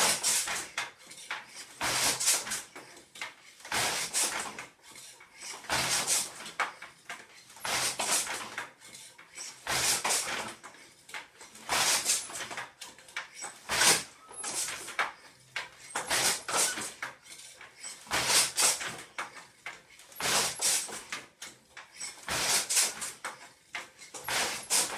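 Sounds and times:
loom wooden knocks and sliding: 0:00.0 - 0:24.9.

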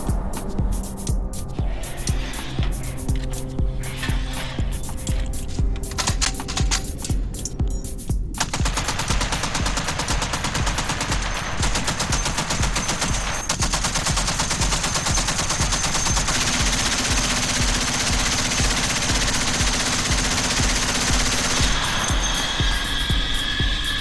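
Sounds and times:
machine gun firing: 0:08.4 - 0:22.1.

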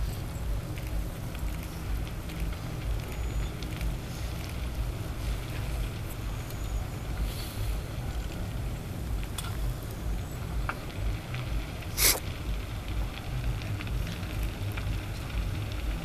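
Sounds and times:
fire crackling: 0:00.0 - 0:16.0
fire rumbling: 0:00.0 - 0:16.0
loud sharp crack: 0:11.9 - 0:12.3.

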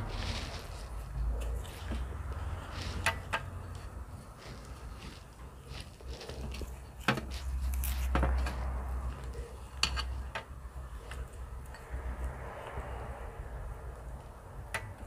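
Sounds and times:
hands handling bananas: 0:00.0 - 0:11.5
low rumble: 0:07.5 - 0:15.0.

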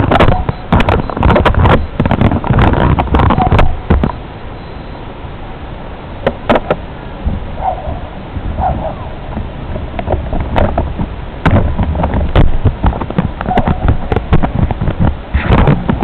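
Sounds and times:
knocks and clicks: 0:00.0 - 0:04.2, 0:06.2 - 0:06.8, 0:09.3 - 0:16.0
wind rumbling on microphone: 0:00.0 - 0:16.0.

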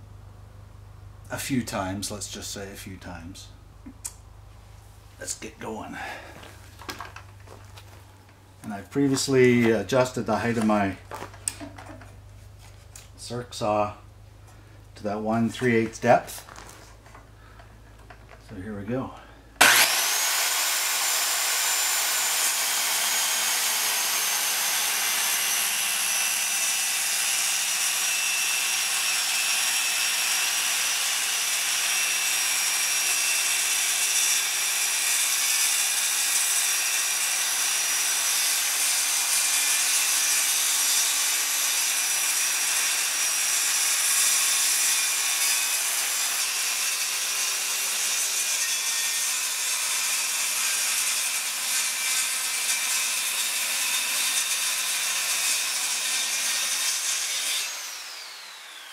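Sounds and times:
circular saw cutting wood: 0:19.6 - 0:58.9.

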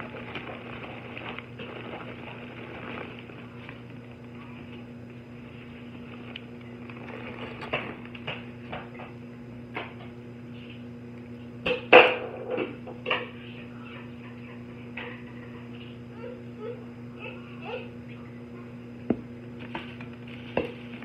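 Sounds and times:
paper bag rustling and crinkling: 0:00.0 - 0:04.8, 0:05.4 - 0:08.3
steady low hum: 0:00.0 - 0:21.0.

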